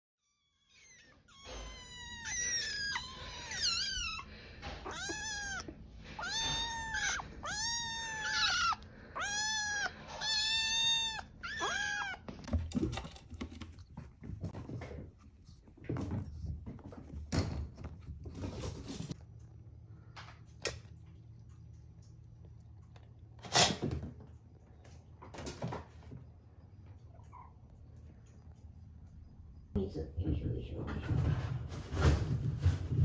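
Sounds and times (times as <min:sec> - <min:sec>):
kittens meowing: 0:00.2 - 0:12.4.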